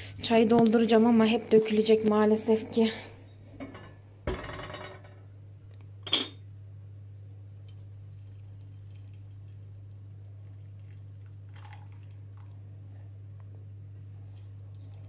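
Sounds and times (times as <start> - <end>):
tea pouring into a glass mug: 7.4 - 12.6, 14.2 - 15.0.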